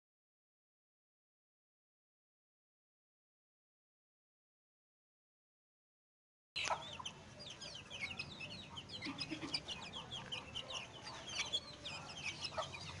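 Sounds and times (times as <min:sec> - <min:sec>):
chicks peeping: 0:06.6 - 0:13.0
hen clucking: 0:06.6 - 0:13.0.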